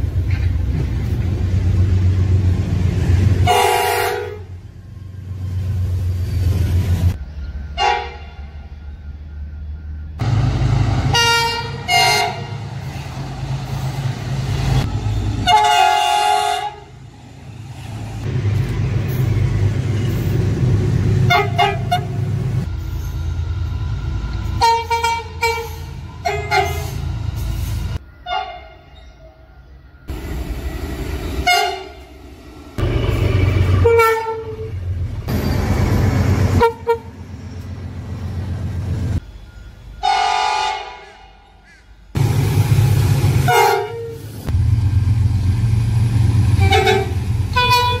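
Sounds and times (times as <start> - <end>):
locomotive engines rumbling: 0.0 - 48.0
locomotive horn toots: 3.4 - 4.6, 7.8 - 8.7, 11.0 - 13.0, 15.2 - 17.0, 21.2 - 22.3, 24.5 - 27.1, 28.2 - 29.1, 31.4 - 32.1, 32.8 - 34.9, 36.5 - 37.2, 40.0 - 41.7, 43.4 - 44.4, 46.5 - 48.0.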